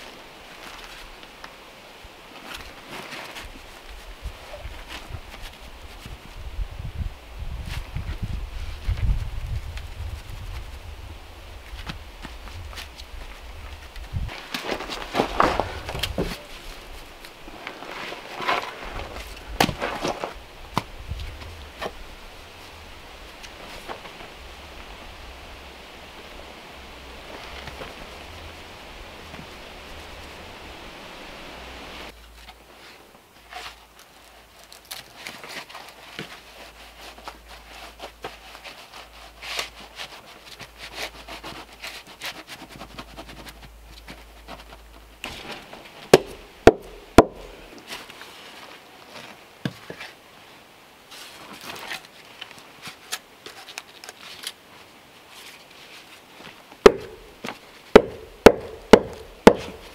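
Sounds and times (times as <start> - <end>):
steady hiss: 0.0 - 34.7
soft scraping and rustling: 7.6 - 25.1, 32.0 - 46.1, 47.6 - 57.9
wooden knocks of logs: 18.4 - 22.0, 44.1 - 47.6, 56.8 - 59.9.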